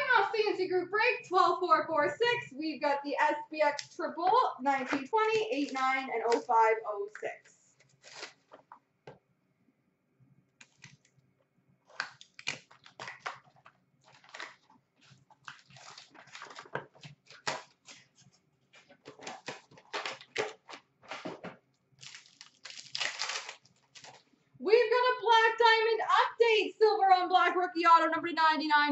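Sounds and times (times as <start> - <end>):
wrappers crinkling and rustling: 7.7 - 8.8, 11.8 - 24.4
foil packs tearing: 7.9 - 8.6, 11.9 - 18.2, 18.8 - 21.4, 22.0 - 24.3.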